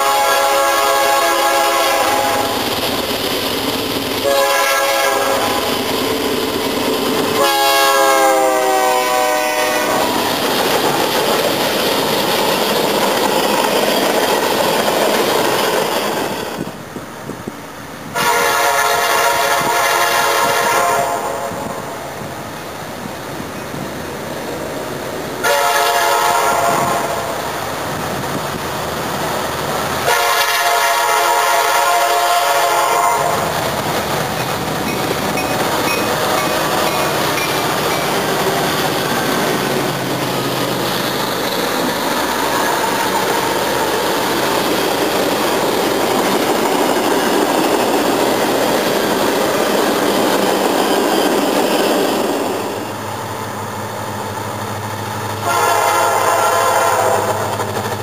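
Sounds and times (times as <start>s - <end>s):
locomotive horn blasts: 0.0s - 2.6s, 4.2s - 5.6s, 7.4s - 10.2s, 18.2s - 21.8s, 25.4s - 27.4s, 30.0s - 33.5s, 55.4s - 57.5s
train rumbling past: 0.0s - 58.0s.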